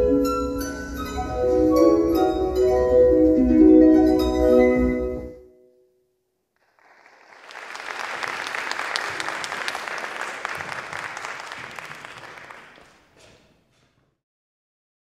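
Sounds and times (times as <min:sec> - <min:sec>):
audience applauding: 0:06.6 - 0:13.5.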